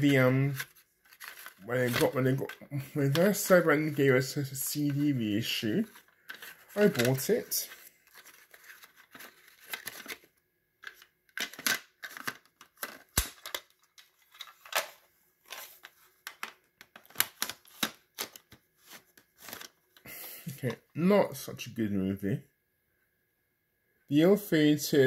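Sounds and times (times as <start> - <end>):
plastic cassette cases clicking: 0.6 - 2.5, 5.9 - 7.3, 8.1 - 15.0.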